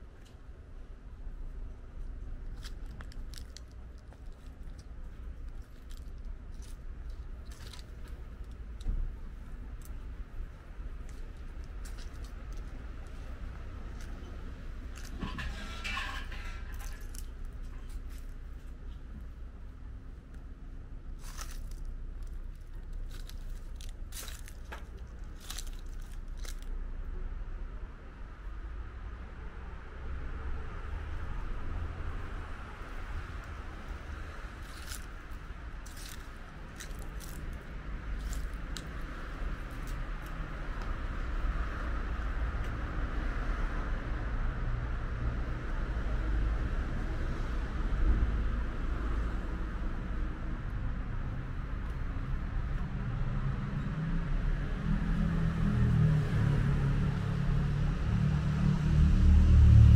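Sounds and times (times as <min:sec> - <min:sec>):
low steady rumble: 0:00.0 - 0:55.8
faint crunching footsteps: 0:02.5 - 0:14.2, 0:21.2 - 0:26.7, 0:34.4 - 0:41.0.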